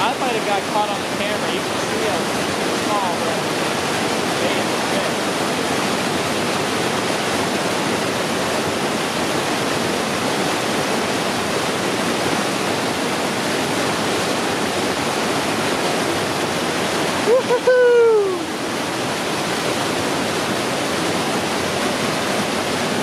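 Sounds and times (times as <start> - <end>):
creek water rushing over rocks: 0.0 - 23.0.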